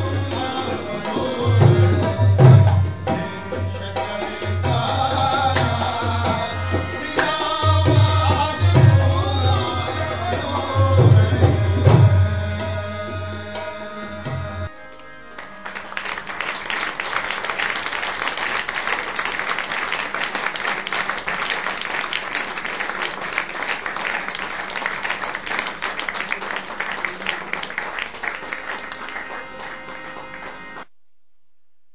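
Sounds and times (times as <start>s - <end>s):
audience applauding: 14.9s - 30.9s.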